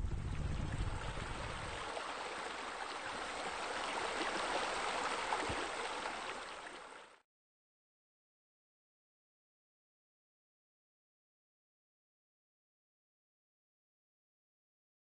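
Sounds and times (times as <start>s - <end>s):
low rumble: 0.0s - 1.7s.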